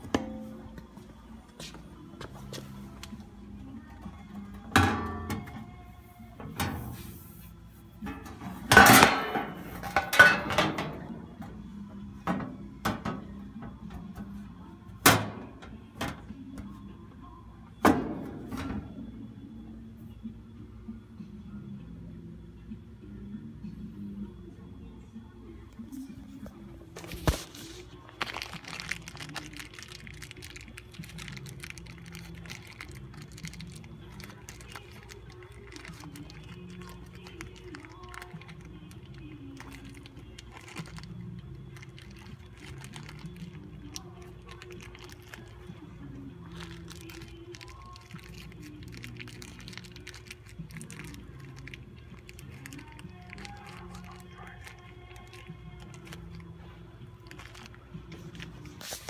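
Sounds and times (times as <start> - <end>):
metal grill parts clanking: 8.1 - 11.0.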